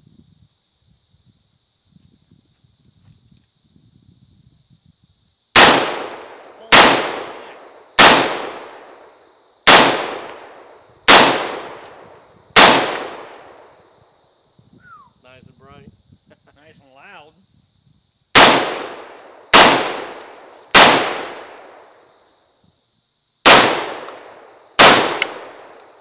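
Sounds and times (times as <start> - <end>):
high insect buzz: 0.0 - 26.0
rifle shots echoing: 5.6 - 12.0, 12.6 - 13.7, 18.3 - 21.8, 23.4 - 25.8.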